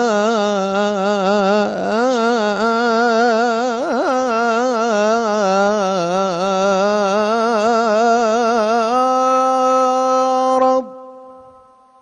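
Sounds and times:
man singing melisma: 0.0 - 11.8.

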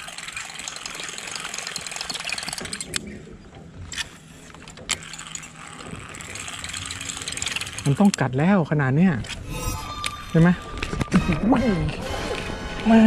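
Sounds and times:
fishing reel ticking whir: 0.0 - 10.9
sharp reel clicks: 3.9 - 8.4.

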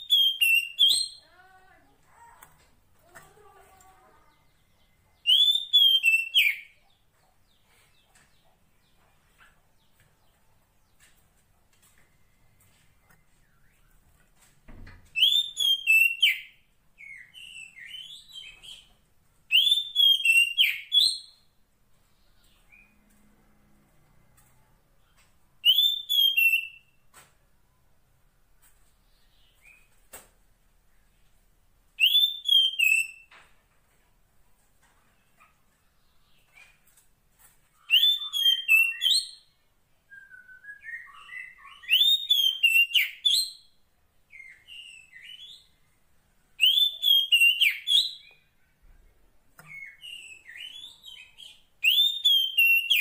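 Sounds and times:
faint bird chirps: 37.7 - 43.4
bird whistled call: 37.8 - 39.3.

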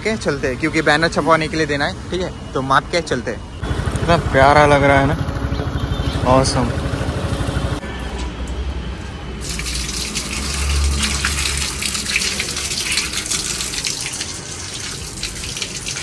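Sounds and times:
water splashing onto concrete: 9.4 - 16.0.

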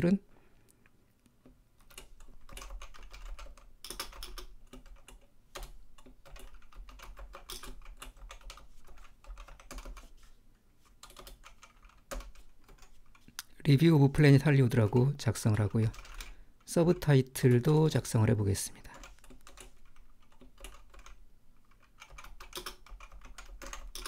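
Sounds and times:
computer keyboard typing: 1.8 - 10.1, 11.0 - 13.3, 14.7 - 17.1, 18.9 - 24.0.

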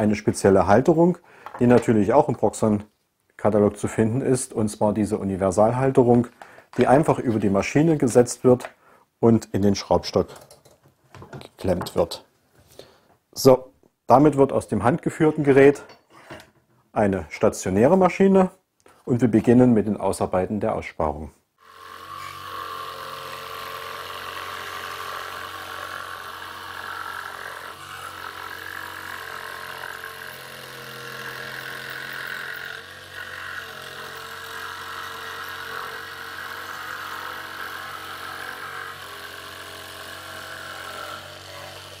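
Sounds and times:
jig saw cutting thin sheet: 21.6 - 42.0.

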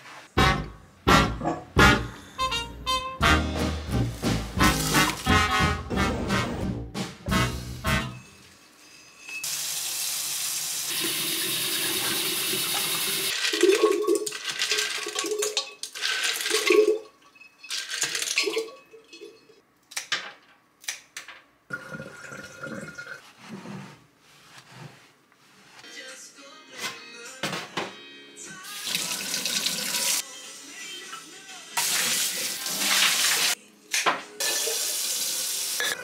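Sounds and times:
water pouring and splashing: 4.1 - 5.3, 9.4 - 17.1, 31.8 - 33.6.

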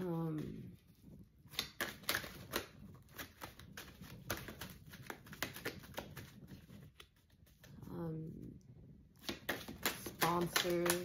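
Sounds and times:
cards being shuffled: 0.3 - 7.9, 9.2 - 11.0.

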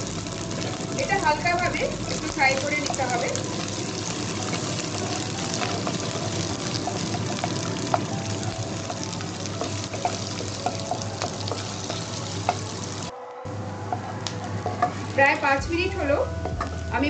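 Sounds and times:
onions sizzling in hot oil: 0.0 - 13.1
wooden spatula knocking pan: 4.5 - 12.7.

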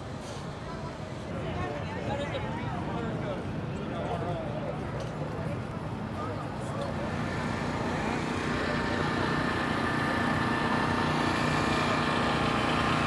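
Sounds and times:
vehicle engine running: 6.8 - 13.0.

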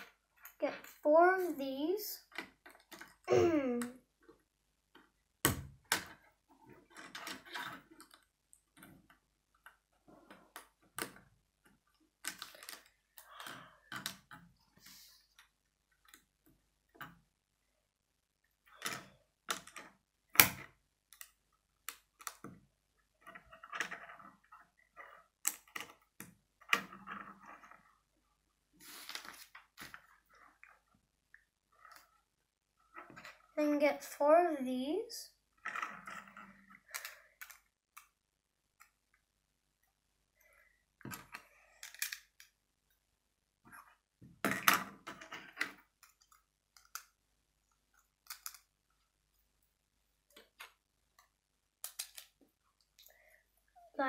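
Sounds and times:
plastic bricks clicking: 35.6 - 38.2, 41.1 - 42.6, 48.1 - 48.7, 50.4 - 52.4.

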